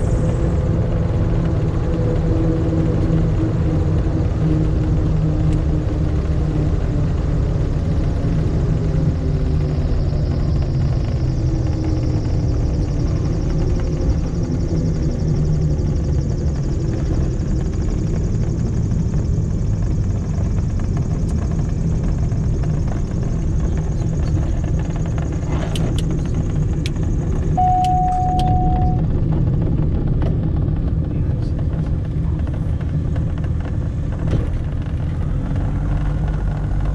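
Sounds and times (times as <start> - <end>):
aircraft engines and propellers: 0.0 - 36.9
short steady beep: 27.6 - 29.0.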